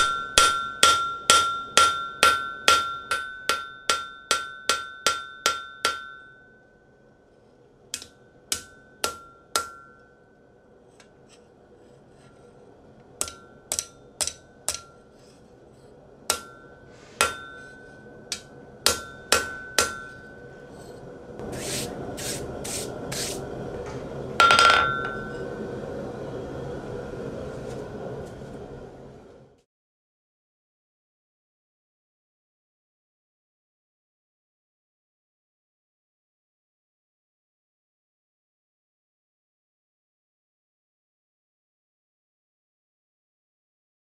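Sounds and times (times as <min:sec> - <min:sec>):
hammer ringing on anvil: 0:00.0 - 0:07.1, 0:08.0 - 0:10.4, 0:13.2 - 0:15.4, 0:16.3 - 0:21.0, 0:24.4 - 0:25.8
steady rushing noise: 0:16.0 - 0:29.4.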